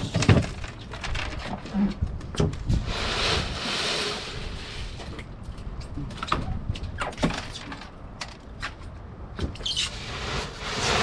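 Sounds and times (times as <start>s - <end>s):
ice slush rustling and sloshing: 2.8s - 5.1s, 9.9s - 11.0s.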